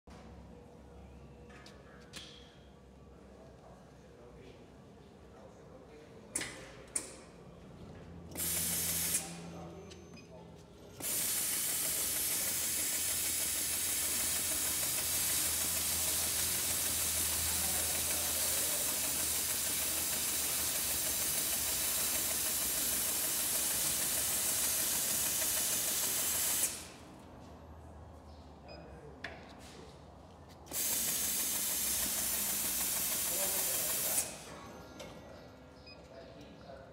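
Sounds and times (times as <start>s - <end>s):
machine clicks: 11.0s - 26.7s.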